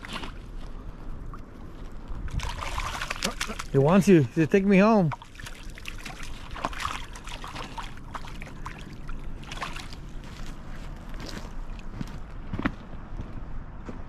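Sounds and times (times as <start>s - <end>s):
gravel crunching: 9.3s - 14.0s.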